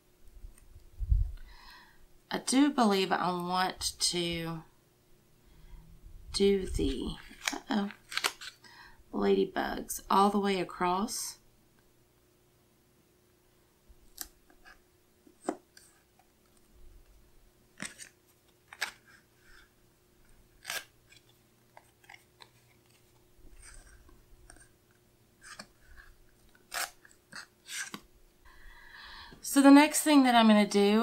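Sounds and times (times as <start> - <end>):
tape crackling and tearing: 7.0 - 8.6, 17.8 - 19.2, 20.6 - 24.7, 25.4 - 28.0
paper rustling: 17.8 - 19.7.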